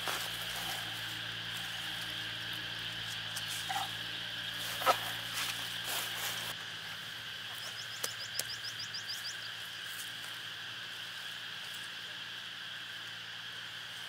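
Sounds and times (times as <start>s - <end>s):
high-pitched animal chorus: 0.4s - 6.4s.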